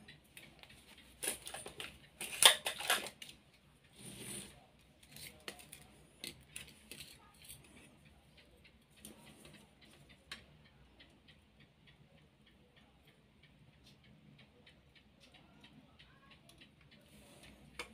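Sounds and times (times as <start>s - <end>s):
metal parts and tools clattering: 1.2s - 3.3s.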